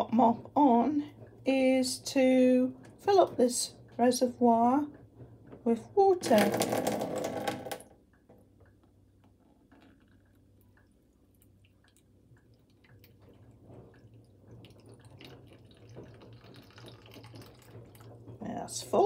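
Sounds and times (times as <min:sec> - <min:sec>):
tap water trickling into tank: 0:04.9 - 0:18.6.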